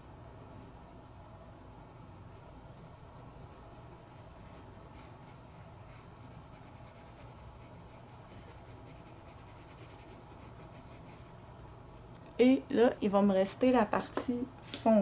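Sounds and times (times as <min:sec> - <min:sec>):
pencil scratching on paper: 0:01.8 - 0:12.0.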